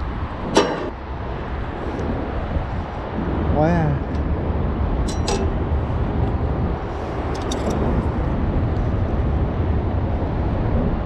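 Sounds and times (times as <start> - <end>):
low outdoor rumble: 0.0 - 11.0
light clicks and clinks: 5.1 - 5.5, 7.3 - 7.9.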